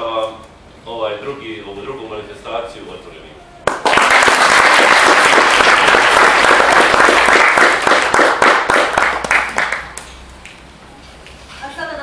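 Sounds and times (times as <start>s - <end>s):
audience applauding: 3.6s - 10.1s.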